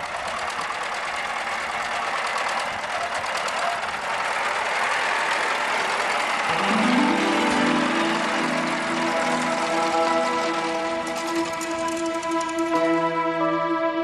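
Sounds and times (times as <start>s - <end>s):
tractor engine knocking: 0.0s - 13.0s.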